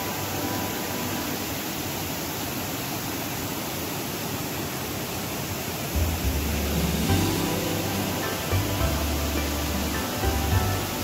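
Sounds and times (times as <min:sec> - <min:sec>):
deep low hum: 0:06.0 - 0:11.0.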